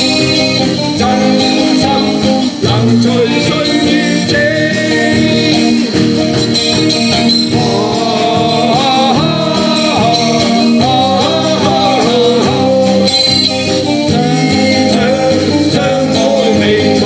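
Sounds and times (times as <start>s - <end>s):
live band playing pop: 0.0s - 17.0s
person singing: 0.0s - 17.0s.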